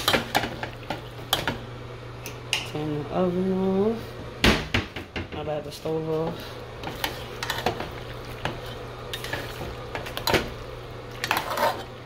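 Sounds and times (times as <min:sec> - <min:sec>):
utensil stirring pasta in saucepan: 0:00.0 - 0:01.7, 0:05.6 - 0:12.0.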